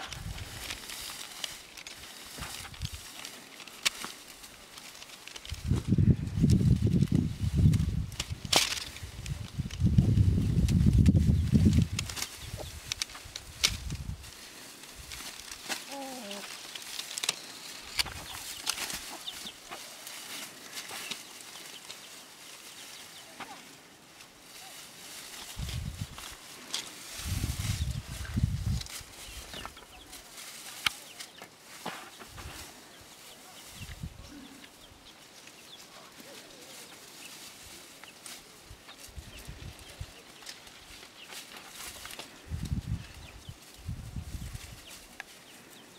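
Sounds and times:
dry straw rustling: 0:00.0 - 0:45.9
chickens clucking: 0:12.4 - 0:12.9, 0:18.0 - 0:19.9.

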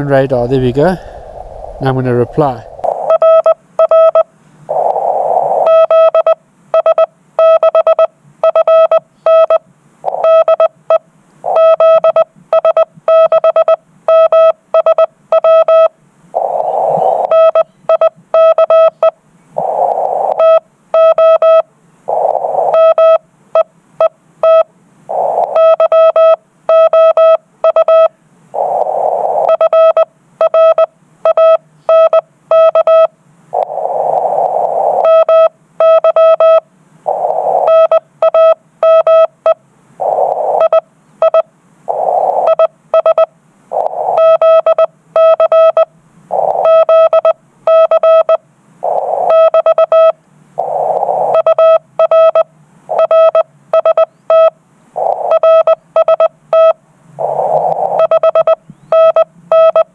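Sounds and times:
soft hiss: 0:00.0 - 0:03.1
morse code tone: 0:01.8 - 0:04.2, 0:11.5 - 0:15.9, 0:16.6 - 0:19.1, 0:20.4 - 0:21.6, 0:29.4 - 0:33.1, 0:35.0 - 0:39.3, 0:42.0 - 0:59.9.

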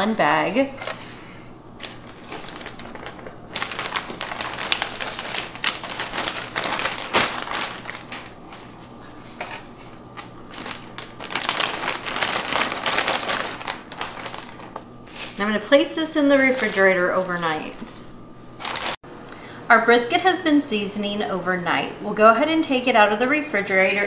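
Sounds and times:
plastic bag crinkling: 0:01.7 - 0:17.8, 0:18.5 - 0:19.0.

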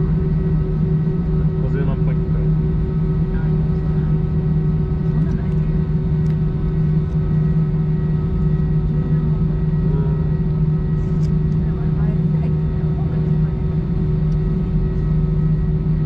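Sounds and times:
airplane cabin engine drone: 0:00.0 - 0:16.0
faint passenger voices murmuring: 0:01.2 - 0:07.8, 0:09.0 - 0:15.6.

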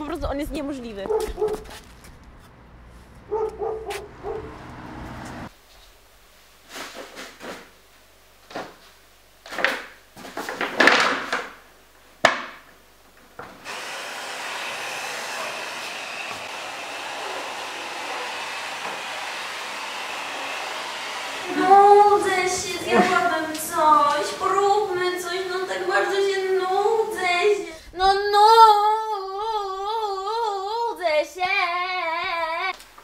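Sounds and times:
scrapes and rustles: 0:01.1 - 0:04.1, 0:06.6 - 0:07.8
vacuum cleaner running: 0:03.1 - 0:05.5, 0:13.6 - 0:27.7.

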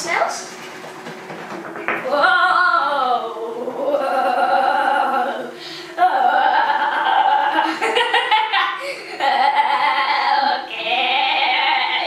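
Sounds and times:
girl singing wavering aah: 0:02.0 - 0:07.8, 0:08.7 - 0:12.0.

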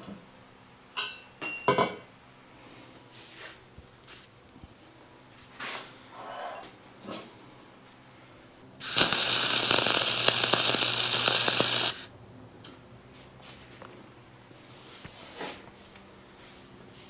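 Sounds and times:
welding arc crackling: 0:08.8 - 0:12.1.

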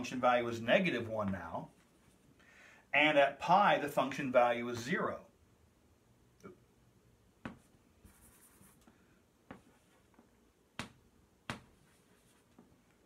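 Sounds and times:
chalk tapping on blackboard: 0:07.4 - 0:08.8
chalk scratching on blackboard: 0:07.5 - 0:08.8.

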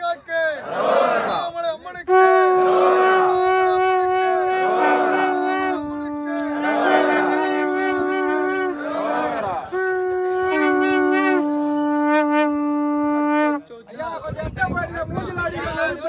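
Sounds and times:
conch shells blown: 0:02.0 - 0:13.7.

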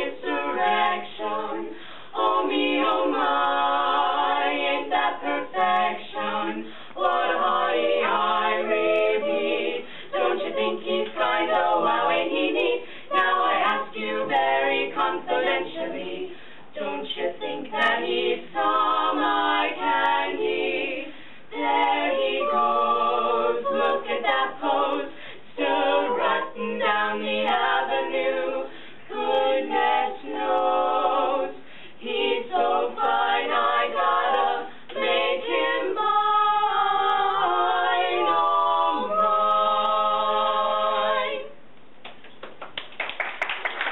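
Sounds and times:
women singing a cappella harmony: 0:00.0 - 0:41.6
singers breathing: 0:01.7 - 0:02.2, 0:06.6 - 0:07.0, 0:09.8 - 0:10.2, 0:12.8 - 0:13.2, 0:16.3 - 0:16.7, 0:21.1 - 0:21.5, 0:25.1 - 0:25.5, 0:28.7 - 0:29.1, 0:31.6 - 0:32.0, 0:34.7 - 0:34.9.

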